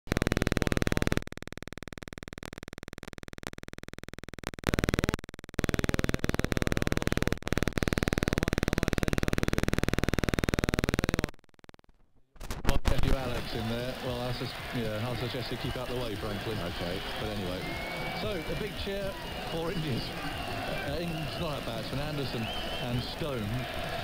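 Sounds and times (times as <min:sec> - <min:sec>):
pulsing electrical buzz: 0:00.1 - 0:11.8
steady whining tones: 0:13.1 - 0:24.0.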